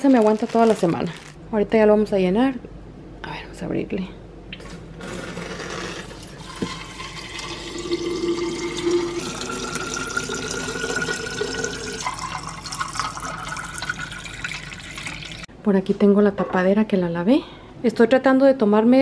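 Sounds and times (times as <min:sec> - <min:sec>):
water running into bottle: 0:05.0 - 0:15.5.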